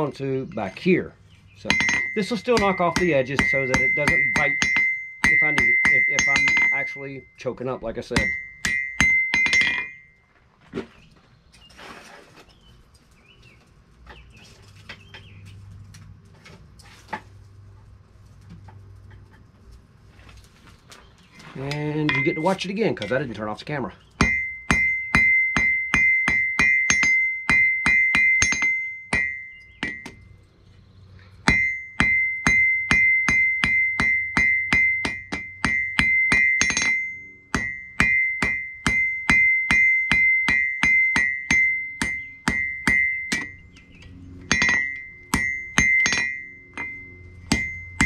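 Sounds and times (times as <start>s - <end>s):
hammer striking steel on anvil: 1.6s - 7.4s, 8.0s - 10.1s, 22.0s - 23.2s, 24.2s - 30.2s, 31.4s - 48.0s
anvil ringing: 1.6s - 10.2s, 22.0s - 23.2s, 24.2s - 30.3s, 31.4s - 48.0s.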